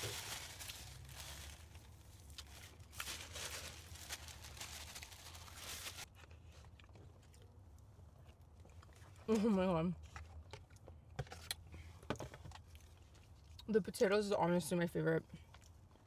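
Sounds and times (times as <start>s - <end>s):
paper napkin rustling and crinkling: 0.0s - 6.1s.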